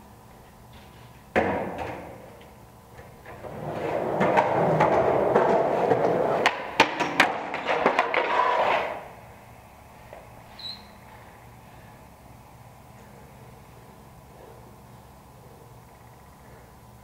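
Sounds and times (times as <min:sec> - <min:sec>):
skateboard wheels rolling on concrete: 0:00.2 - 0:09.4
skateboard wooden clacks: 0:03.0 - 0:09.0.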